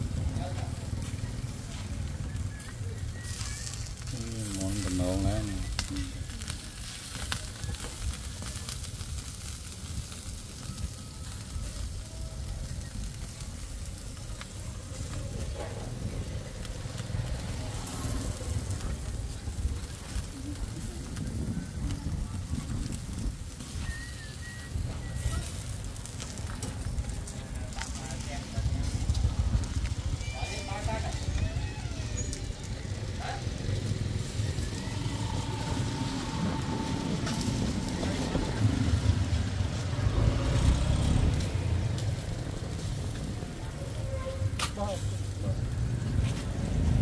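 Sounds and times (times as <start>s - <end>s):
food sizzling and crackling: 0.0s - 47.0s
vehicle engine rumbling: 0.0s - 47.0s
steady low rumble: 24.6s - 31.6s, 32.2s - 47.0s.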